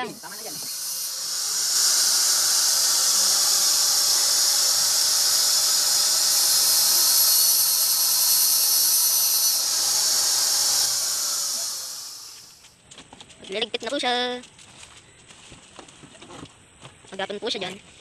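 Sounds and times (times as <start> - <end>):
angle grinder cutting steel mesh: 0.0 - 12.6.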